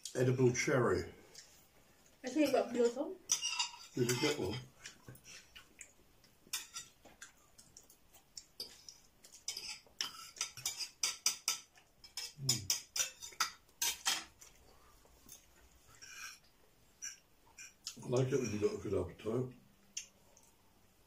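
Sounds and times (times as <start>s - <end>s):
cutlery scraping on plates: 3.3s - 5.5s, 6.5s - 7.0s, 8.6s - 14.4s, 15.3s - 16.4s, 17.0s - 18.8s.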